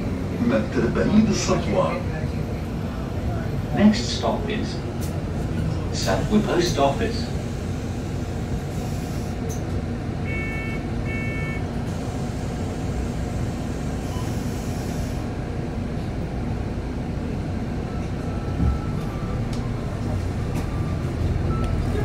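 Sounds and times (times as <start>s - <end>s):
bus engine idling: 0.0s - 22.0s
short electronic beeps: 10.3s - 11.6s.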